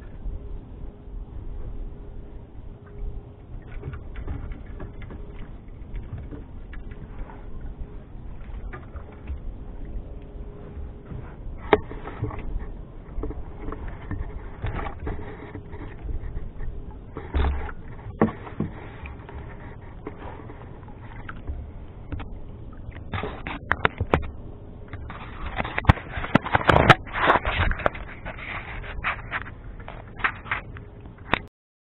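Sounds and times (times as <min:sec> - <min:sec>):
low steady rumble: 0:00.0 - 0:31.5.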